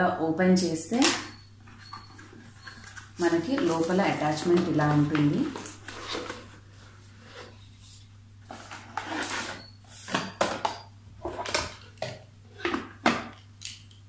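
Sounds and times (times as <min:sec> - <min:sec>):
packaging rustling and tapping: 0:01.0 - 0:06.6.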